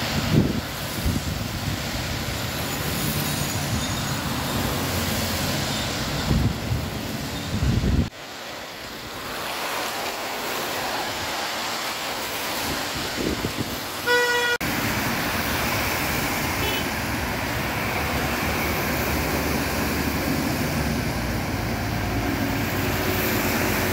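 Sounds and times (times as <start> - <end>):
passing engines: 0.0 - 23.9
tyres hissing on wet road: 0.0 - 23.9
vehicle horn toot: 14.0 - 14.6, 16.6 - 16.9.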